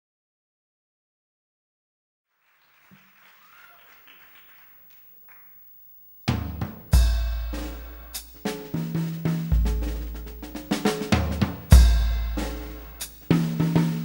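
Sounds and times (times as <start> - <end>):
faint background noise: 2.3 - 14.0
drum kit hits: 6.3 - 14.0
live jazz fusion band: 6.3 - 14.0
low bass guitar notes: 6.4 - 14.0.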